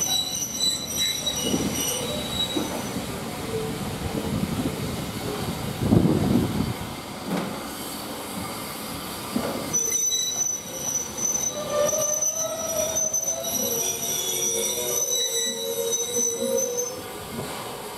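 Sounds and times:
train wheels squealing on rails: 0.0 - 3.9, 7.6 - 17.9
rumble of moving train coaches: 0.0 - 17.9.

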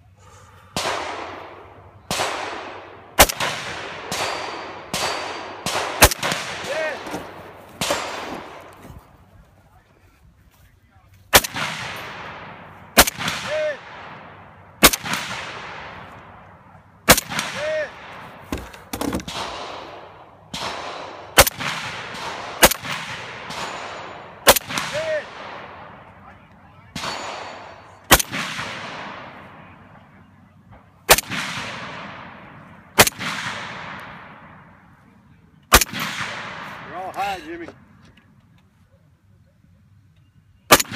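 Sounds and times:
rifle shots echoing: 0.7 - 9.2, 11.3 - 37.7, 40.7 - 40.9.

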